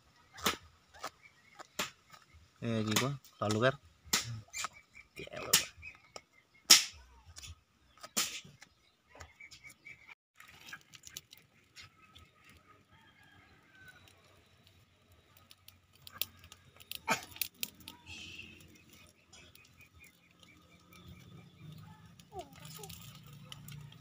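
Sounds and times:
wood fire crackling and popping: 0.4s - 4.8s, 10.4s - 24.0s.

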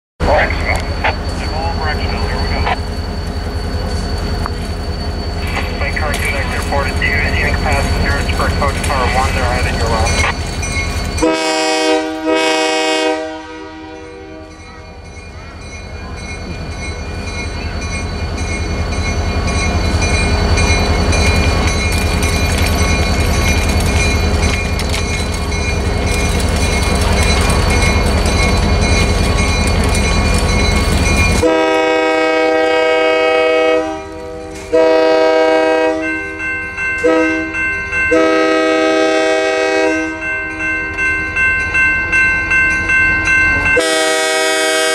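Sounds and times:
low train rumble: 0.2s - 44.9s
train horn blasts: 11.2s - 14.6s, 31.4s - 36.2s, 37.0s - 40.3s, 43.8s - 44.9s.

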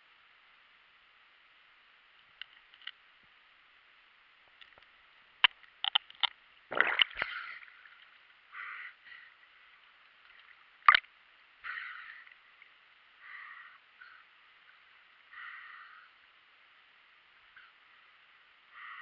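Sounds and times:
gurgling splash: 6.7s - 7.9s
rushing water bursts: 6.7s - 8.0s.

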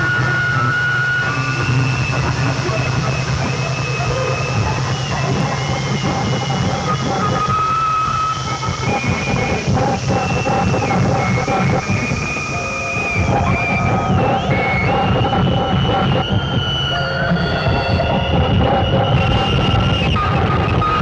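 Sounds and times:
steady low drone: 0.0s - 21.0s.

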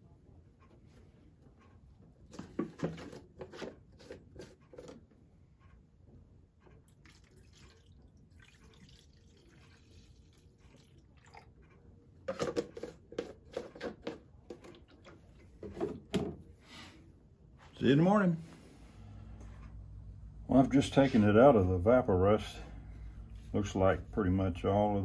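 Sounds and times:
plastic jug knocking and clicking: 2.3s - 3.8s, 12.2s - 16.4s
liquid trickling into tray: 6.9s - 11.6s.

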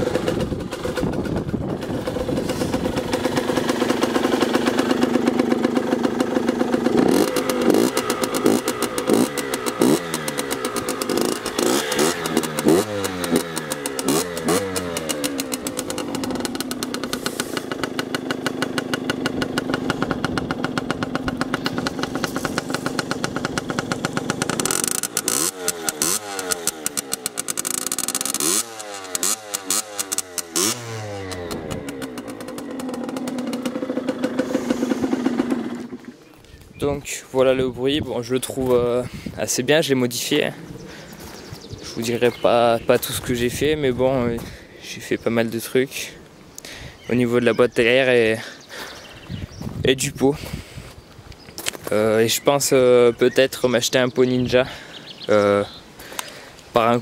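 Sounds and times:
two-stroke engine revving: 0.0s - 36.2s.

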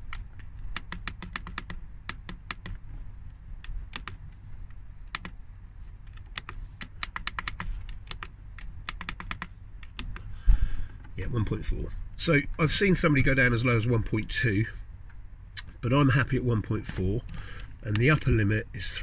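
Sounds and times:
low steady hum: 0.0s - 19.0s
push buttons clicking: 6.1s - 10.2s.

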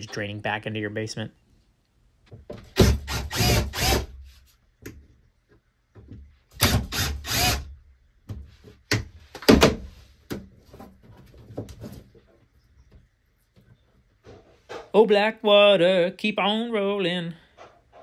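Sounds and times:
tools clunking and scraping: 8.2s - 15.0s, 17.4s - 18.0s.

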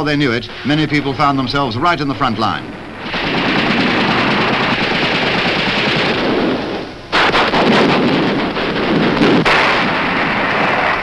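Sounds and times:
rapid gunfire: 3.0s - 11.0s.

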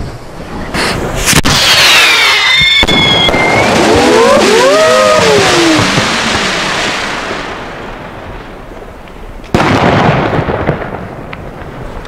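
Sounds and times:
firework stars hissing: 0.8s - 7.5s
loud firework bang: 1.2s - 7.8s, 9.5s - 11.4s
faint firework cracks: 8.8s - 12.0s.

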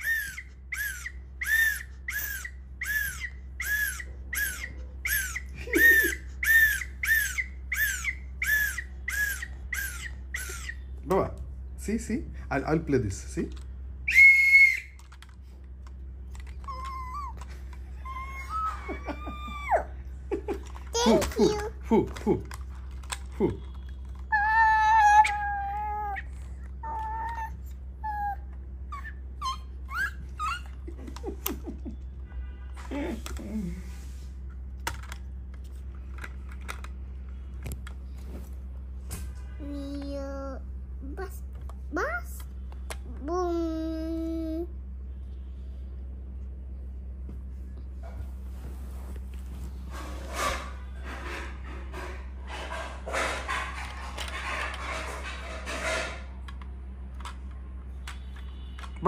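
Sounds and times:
toy whistle blowing: 0.0s - 10.8s, 14.1s - 15.1s
toy whistle puffs: 14.1s - 15.0s.

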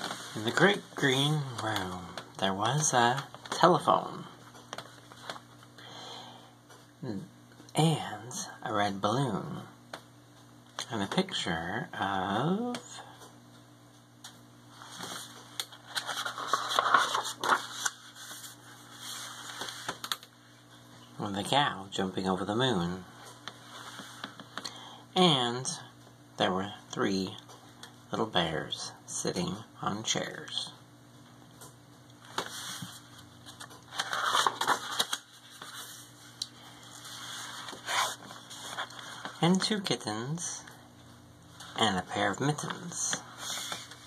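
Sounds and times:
book pages turning: 0.0s - 3.7s, 4.5s - 5.7s, 14.8s - 20.3s, 32.2s - 39.8s, 42.6s - 44.0s.

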